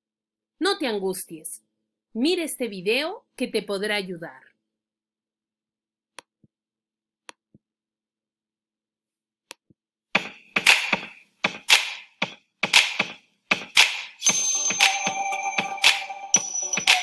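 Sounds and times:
rhythmic percussive hits: 0:10.2 - 0:17.0.

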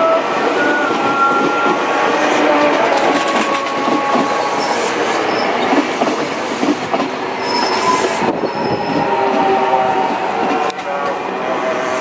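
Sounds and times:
rail clacks: 0:00.0 - 0:12.0
train wheels rumbling on rail: 0:00.0 - 0:12.0
high-pitched wheel squeals: 0:07.4 - 0:09.1.

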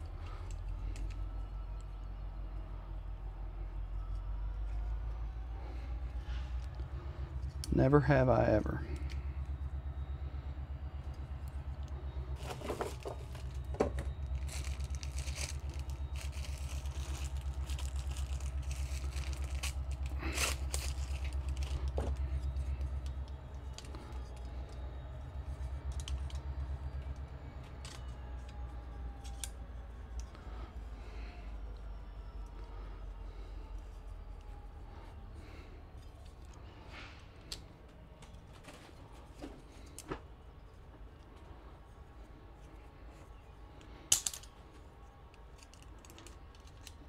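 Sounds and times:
small metal parts clicking and clinking: 0:00.0 - 0:01.3, 0:12.4 - 0:24.8, 0:25.4 - 0:30.4, 0:43.8 - 0:47.0
low hum: 0:00.0 - 0:47.0.

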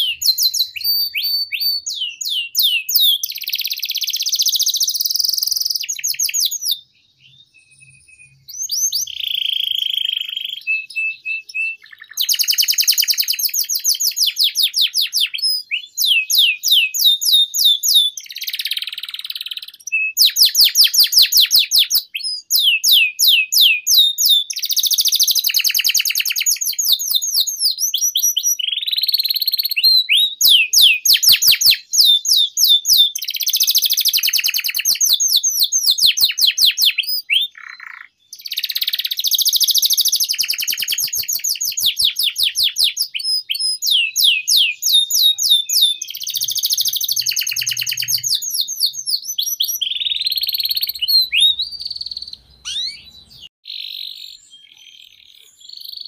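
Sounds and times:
canary singing trills: 0:00.0 - 0:56.0.

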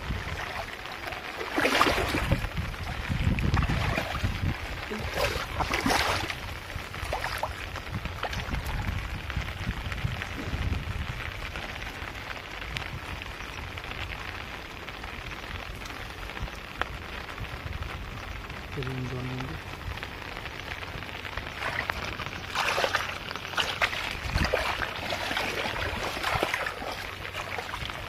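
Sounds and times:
water splashing: 0:00.0 - 0:09.6, 0:20.0 - 0:28.0
dripping water: 0:00.0 - 0:09.9, 0:20.0 - 0:28.0.

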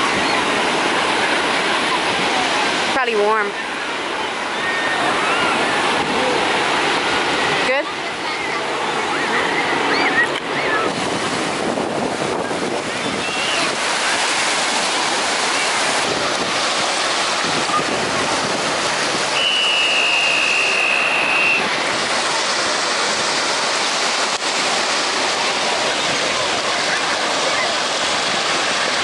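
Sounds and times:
ocean surf breaking: 0:00.0 - 0:29.0
wind buffeting microphone: 0:08.7 - 0:19.4.

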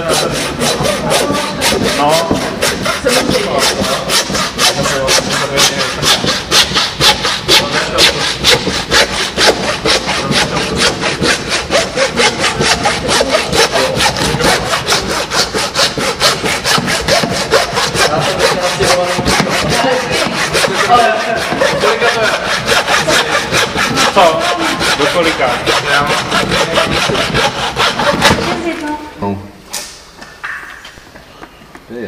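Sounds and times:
hand saw cutting bone: 0:00.0 - 0:28.9.

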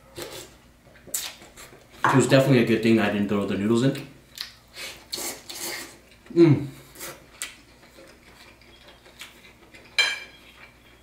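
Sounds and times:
soft chewing: 0:04.3 - 0:11.0.

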